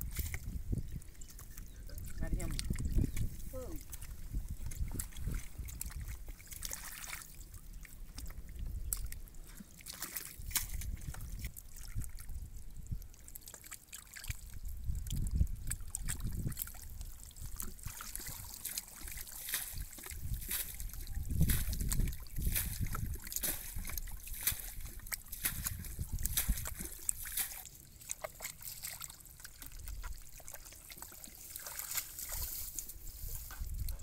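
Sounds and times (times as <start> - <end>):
hands sloshing through muddy water: 0.0 - 34.0.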